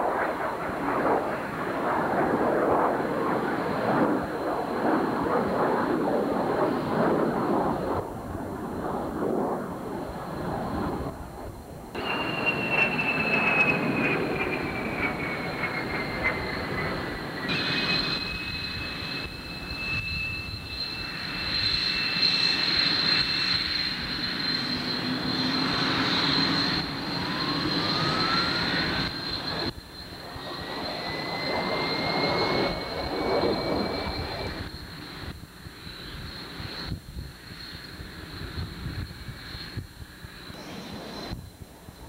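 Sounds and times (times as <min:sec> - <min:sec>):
jet engine turbine whine: 0:00.0 - 0:42.0
whining tones changing pitch: 0:12.0 - 0:35.4.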